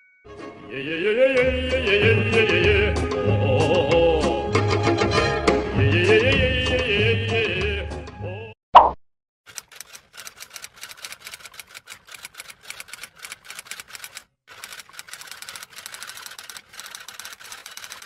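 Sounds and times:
typewriter keys clacking: 9.5 - 18.0.

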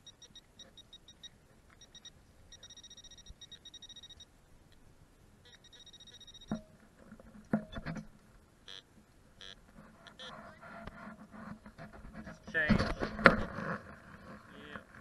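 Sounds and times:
metal detector pulsing tone: 0.0 - 4.3, 5.4 - 6.8, 8.6 - 10.4
short beeps: 0.0 - 4.3, 5.4 - 6.7, 9.4 - 10.4
sharp knocks and scrapes: 6.5 - 8.2, 9.7 - 14.5.

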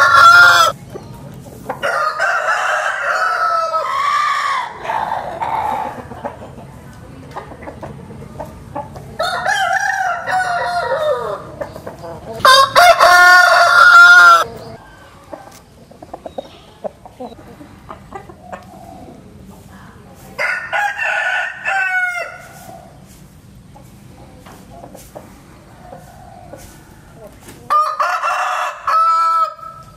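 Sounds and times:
rooster crowing: 0.0 - 0.8, 1.8 - 5.8, 9.2 - 11.5, 12.4 - 14.5, 20.4 - 22.5, 27.7 - 29.9.

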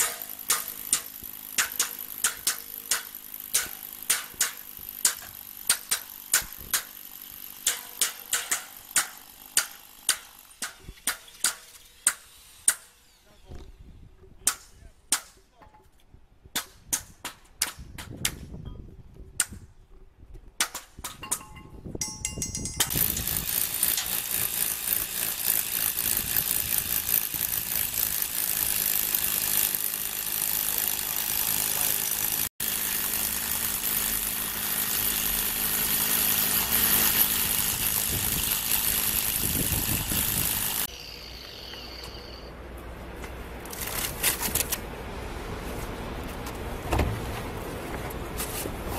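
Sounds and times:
hammer striking metal: 0.0 - 6.9, 7.6 - 12.9
power tool running: 0.0 - 10.6, 22.9 - 42.5.

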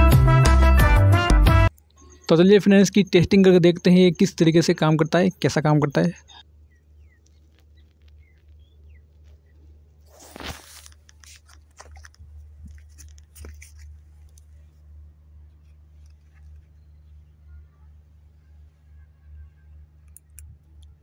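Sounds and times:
steady low hum: 1.7 - 21.0
small clicks and scuffs: 7.2 - 17.1
crunch on gravelly sand: 10.0 - 14.8.

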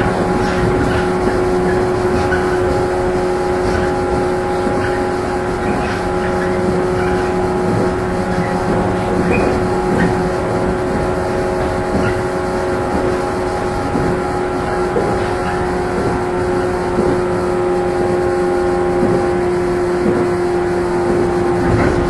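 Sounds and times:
traction motor hum: 0.0 - 22.0
wheel and rail rumble: 0.0 - 22.0.

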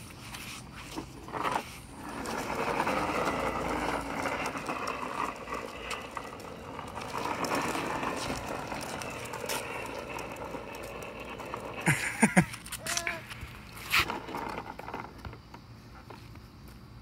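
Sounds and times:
toy lawn mower running: 0.9 - 15.4.

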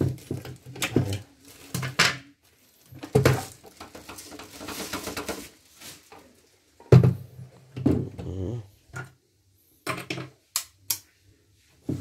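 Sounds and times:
plastic wrapping crackling: 0.0 - 6.6.

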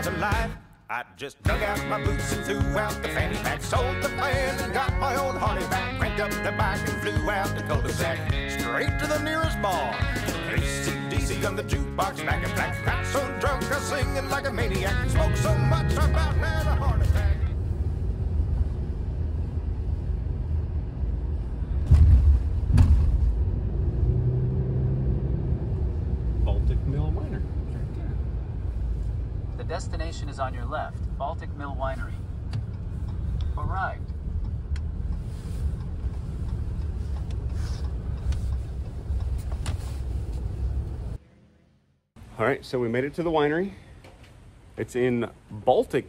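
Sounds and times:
low road rumble: 1.5 - 42.5
car tyres thumping over rails: 21.8 - 23.4.

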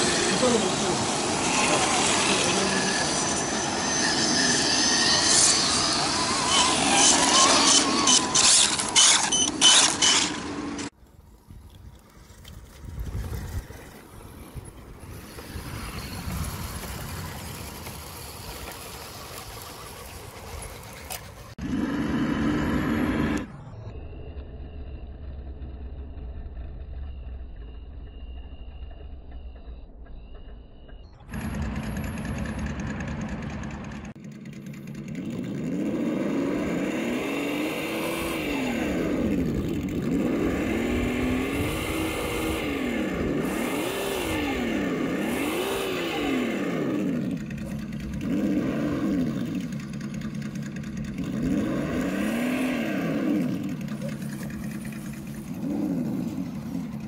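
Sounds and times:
toy truck motor whine: 0.0 - 11.0, 20.5 - 33.6, 35.3 - 50.0.

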